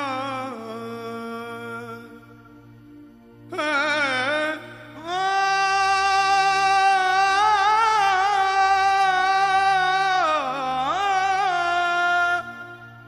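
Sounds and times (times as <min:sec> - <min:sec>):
person singing a long note: 0:03.4 - 0:13.0.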